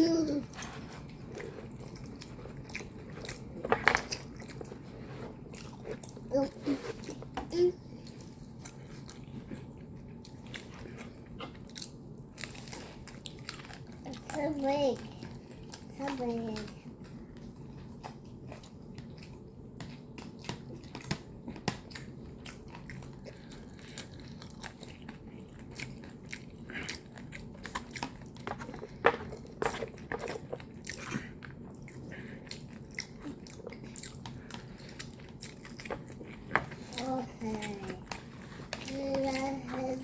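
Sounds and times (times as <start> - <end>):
person chewing noodles: 0.4 - 14.3, 16.6 - 40.0.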